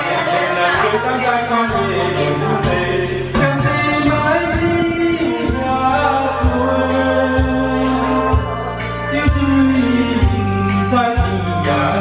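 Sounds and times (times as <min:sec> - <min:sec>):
man singing into microphone: 0:00.0 - 0:12.0
pop backing track: 0:00.0 - 0:12.0.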